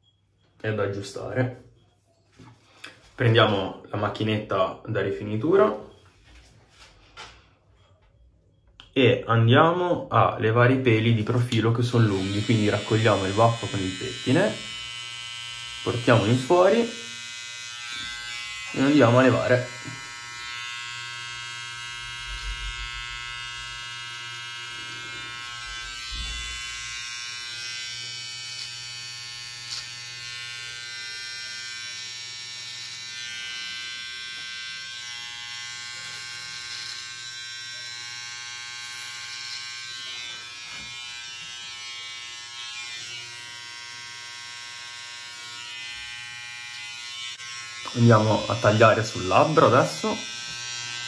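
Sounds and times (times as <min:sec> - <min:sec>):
electric trimmer buzzing: 0:11.5 - 0:51.0.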